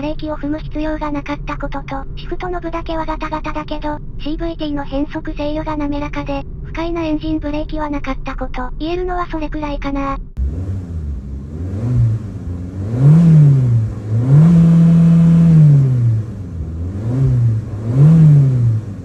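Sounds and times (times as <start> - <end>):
car engine revving: 10.4 - 19.0.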